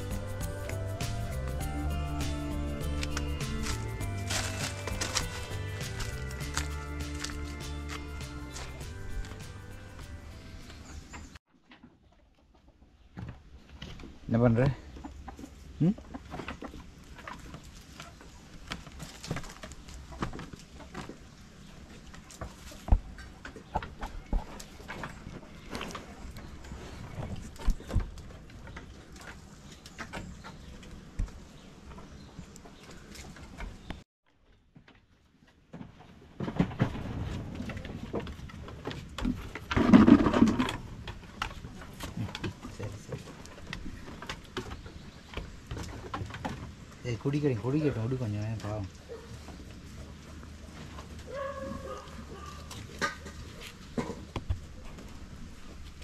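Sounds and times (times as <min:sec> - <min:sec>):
footsteps on wooden planks: 0:02.8 - 0:10.8.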